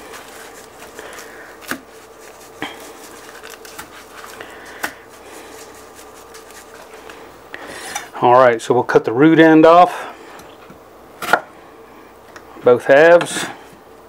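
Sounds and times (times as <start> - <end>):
faint steady hum: 0.0 - 14.0
seasoning shaker patter: 5.1 - 7.1.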